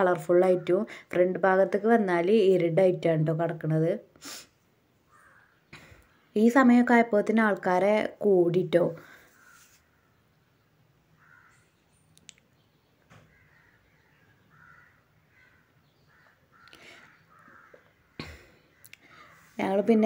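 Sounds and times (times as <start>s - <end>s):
faint outdoor hum: 0.0s - 20.0s
faint distant calls: 4.6s - 6.5s, 9.0s - 20.0s.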